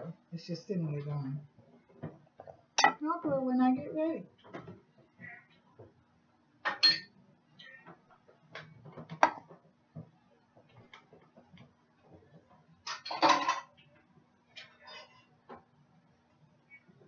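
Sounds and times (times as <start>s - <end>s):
pan and utensils clattering: 12.8s - 13.8s, 14.6s - 15.3s.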